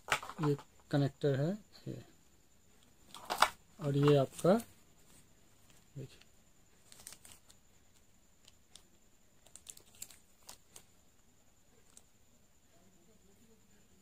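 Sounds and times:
plastic sleeve crinkling: 6.8 - 10.9.

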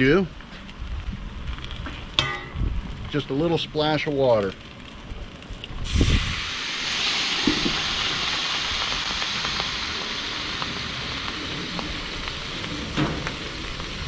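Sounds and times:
water splashing on hot griddle: 5.3 - 14.0
steam hissing: 5.8 - 14.0.

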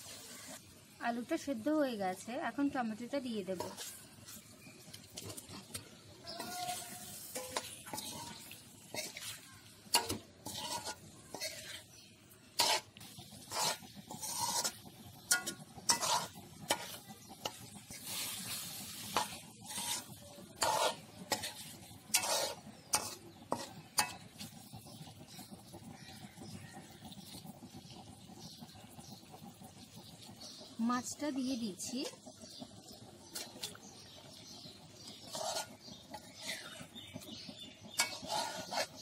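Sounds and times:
masala sizzling in oil: 0.0 - 39.0
steel spoon scraping a metal pan: 3.5 - 25.5, 35.1 - 39.0.

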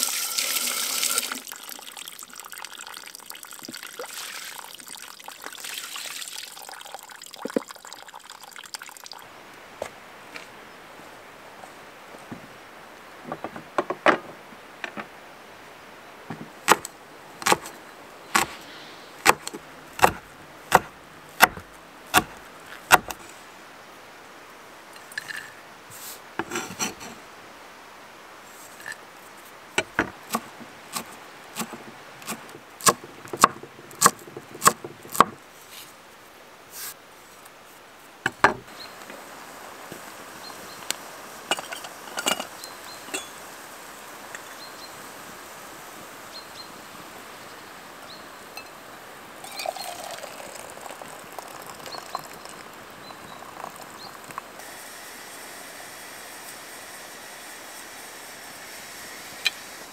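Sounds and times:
knife chopping on wooden board: 19.2 - 23.2, 30.3 - 35.4.

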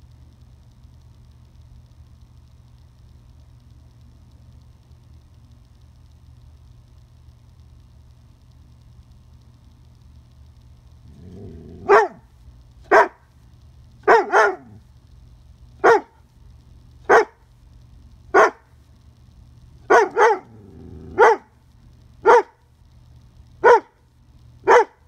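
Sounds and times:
dog barking sharply: 11.8 - 12.2, 12.9 - 13.2, 14.1 - 14.7, 15.8 - 16.1, 17.1 - 17.4, 18.4 - 18.6, 19.9 - 20.5, 21.2 - 21.5, 22.3 - 22.6, 23.6 - 23.9, 24.7 - 25.0.

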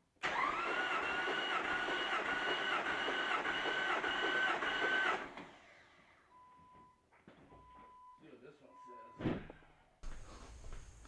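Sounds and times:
starter motor cranking engine: 0.2 - 5.8.

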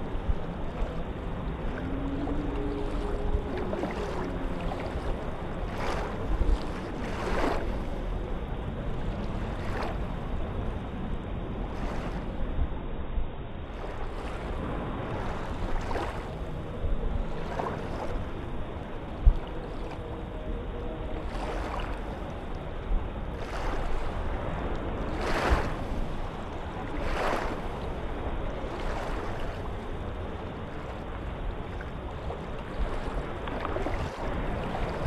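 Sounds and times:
small waves lapping: 0.0 - 12.5, 13.6 - 35.0
low steady rumble: 0.0 - 35.0.

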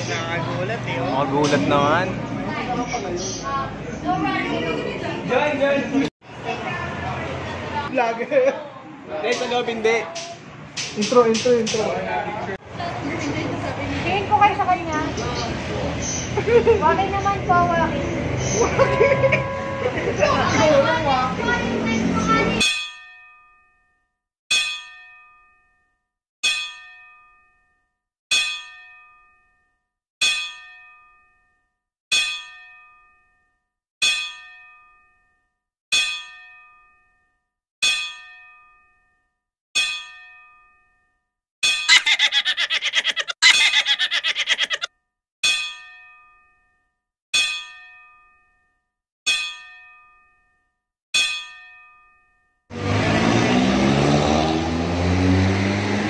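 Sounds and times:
bell-like chime: 18.8 - 20.2.

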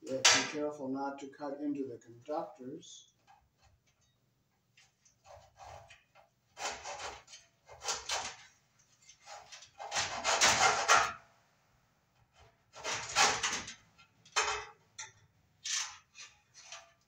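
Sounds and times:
saw rasping through metal cable armor: 5.0 - 11.0, 12.7 - 13.7, 15.6 - 17.0.

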